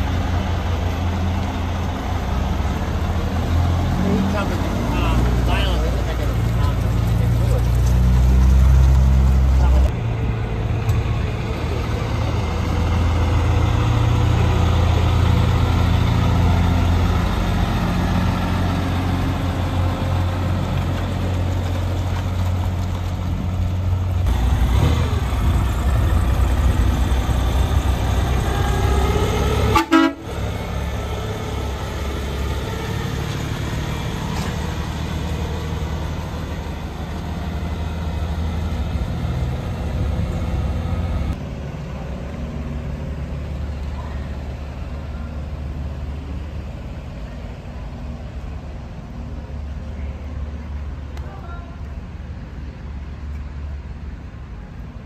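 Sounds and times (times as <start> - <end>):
truck diesel engines rumbling: 0.0 - 55.0
truck horns tooting: 28.4 - 30.5.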